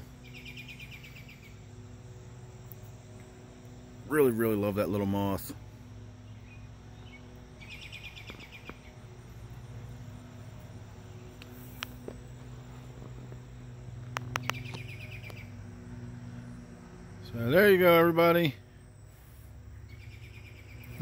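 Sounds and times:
insect chirping: 0:00.0 - 0:21.0
low hum: 0:00.0 - 0:21.0
sharp clicks: 0:14.0 - 0:15.4.

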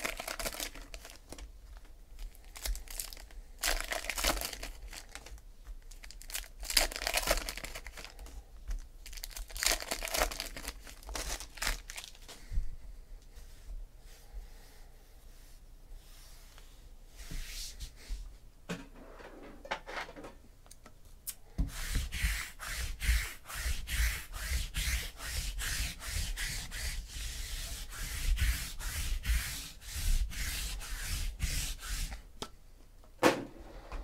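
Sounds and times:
lint roller rolling on tabletop: 0:21.7 - 0:32.2.

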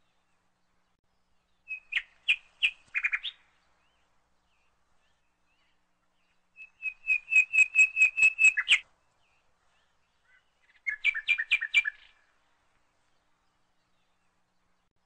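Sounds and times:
bird song whistled notes: 0:01.2 - 0:12.3
bird chirps: 0:01.4 - 0:12.3.

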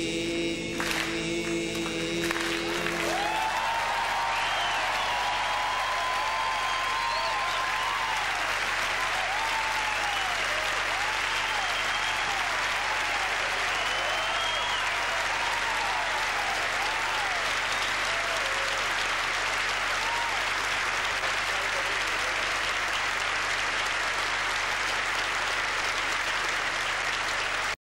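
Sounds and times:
audience applauding: 0:00.8 - 0:27.8
people cheering: 0:01.8 - 0:27.8
whistle: 0:06.6 - 0:07.8, 0:11.4 - 0:12.4, 0:13.6 - 0:15.0, 0:17.6 - 0:18.1.

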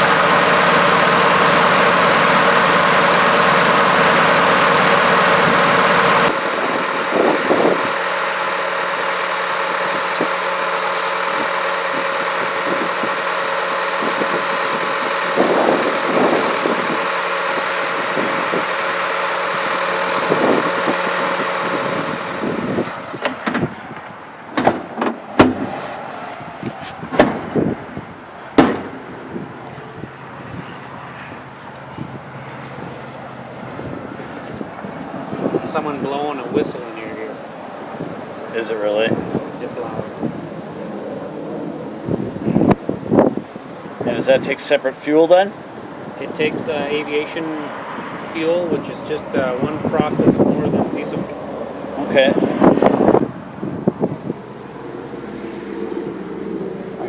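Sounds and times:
jet turbine high whine: 0:00.0 - 0:44.4, 0:45.5 - 0:57.0
low engine drone: 0:00.0 - 0:57.0
sharp knocks and clunks: 0:23.2 - 0:25.8, 0:27.1 - 0:27.6, 0:28.6 - 0:29.0.

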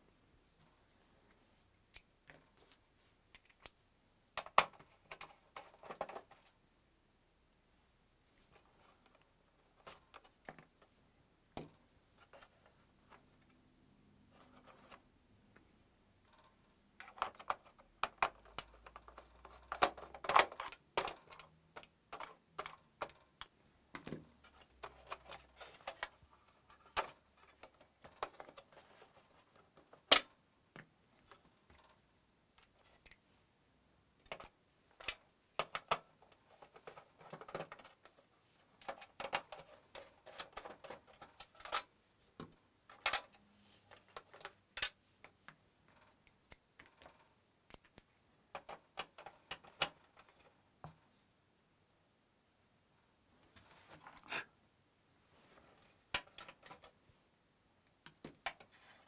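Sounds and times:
plastic and metal parts handled: 0:04.4 - 0:06.6, 0:08.4 - 0:10.9, 0:14.3 - 0:32.0, 0:34.2 - 0:51.0, 0:55.6 - 0:57.0.

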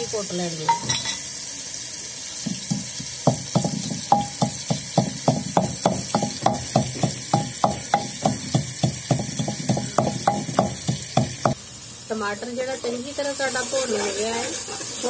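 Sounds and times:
wooden pestle pounding in mortar: 0:02.7 - 0:11.6.

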